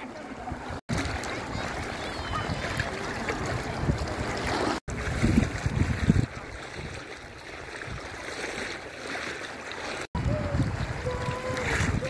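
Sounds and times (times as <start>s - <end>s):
sea water lapping at shore: 0.0s - 12.0s
low rumbling wind gusts: 0.7s - 8.3s, 10.2s - 12.0s.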